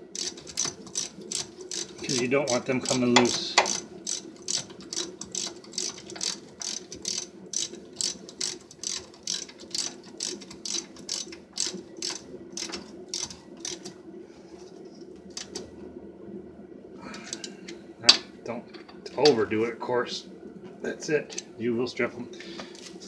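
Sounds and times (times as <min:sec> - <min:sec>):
ratchet pawl clicking: 0:00.1 - 0:13.9.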